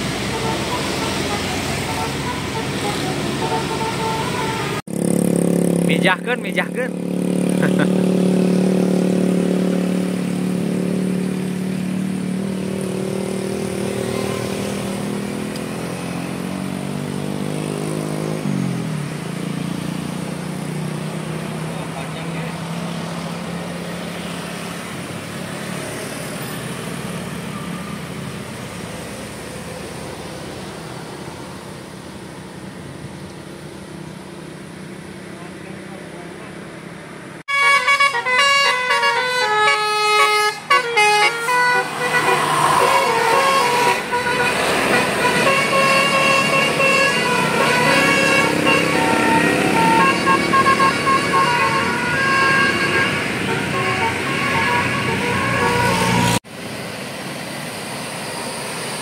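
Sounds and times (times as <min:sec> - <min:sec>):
musical air horn melody: 0:00.0 - 0:04.8, 0:37.5 - 0:56.4
cars driving by: 0:00.0 - 0:59.0
engine and tyre noise: 0:00.0 - 0:59.0.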